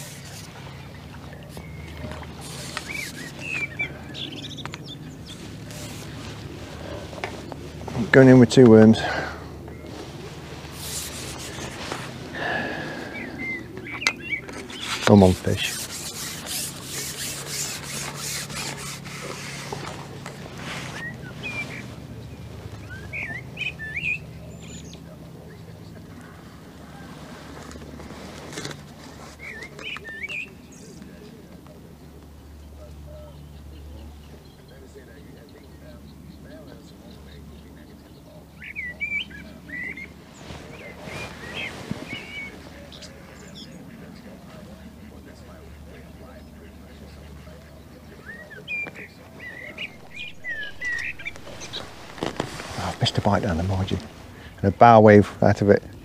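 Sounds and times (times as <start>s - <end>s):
scratchy rustling: 0.0s - 3.9s, 4.9s - 8.7s, 9.8s - 12.6s, 14.4s - 22.9s, 40.1s - 43.5s, 49.3s - 55.4s
bird chirps: 0.0s - 6.4s, 11.3s - 16.4s, 20.6s - 27.0s, 29.3s - 31.2s, 32.6s - 44.8s, 45.4s - 55.0s
songbird whistling: 2.6s - 5.5s, 12.8s - 15.1s, 20.9s - 25.0s, 40.7s - 43.7s, 48.1s - 53.2s
steady low hum: 39.4s - 56.0s.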